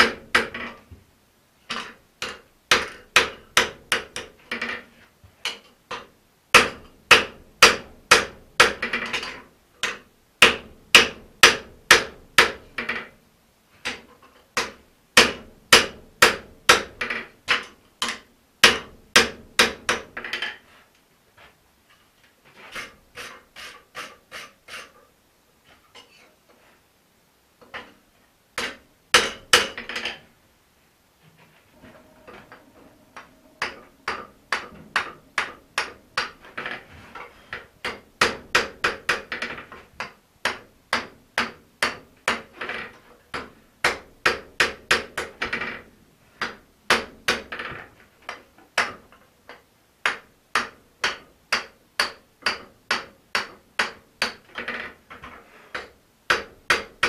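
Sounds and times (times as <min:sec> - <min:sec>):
hammer striking steel on an anvil: 0:31.8 - 0:36.5.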